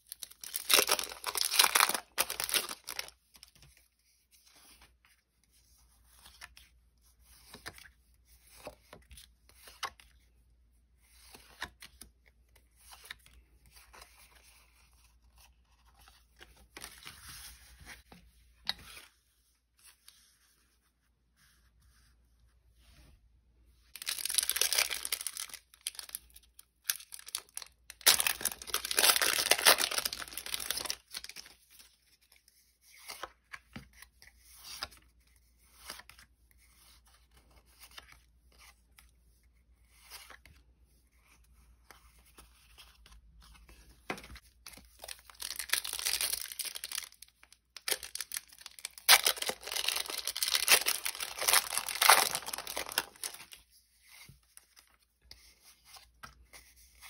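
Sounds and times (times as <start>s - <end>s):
foil wrappers tearing and crinkling: 0.1s - 3.1s, 24.0s - 31.5s, 45.0s - 53.6s.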